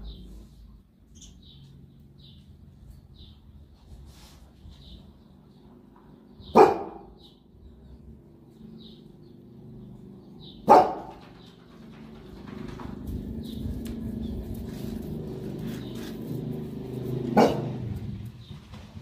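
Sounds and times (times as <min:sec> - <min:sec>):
dog barking: 0:06.4 - 0:07.3, 0:10.6 - 0:11.2, 0:17.3 - 0:17.9
dog low rumbling growl: 0:12.1 - 0:18.5.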